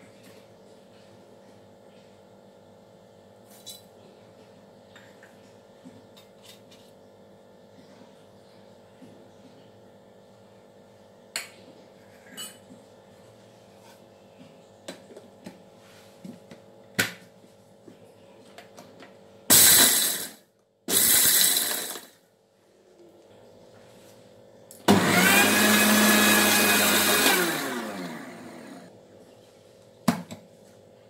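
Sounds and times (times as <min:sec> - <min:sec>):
mixer grinder motor grinding: 0:19.5 - 0:22.1, 0:24.9 - 0:28.9.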